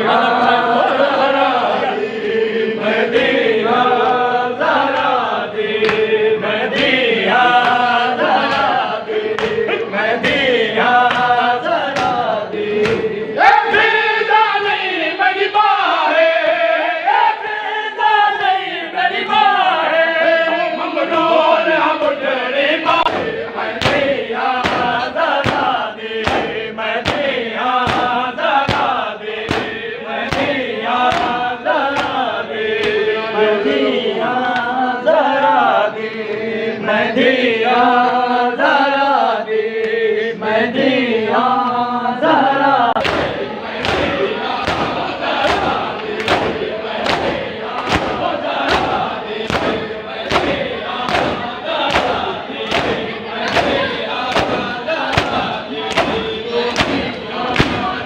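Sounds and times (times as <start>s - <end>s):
men chanting in unison: 0.0s - 58.0s
hands slapping chests: 4.8s - 6.1s, 6.7s - 13.1s, 22.9s - 33.1s, 43.0s - 58.0s.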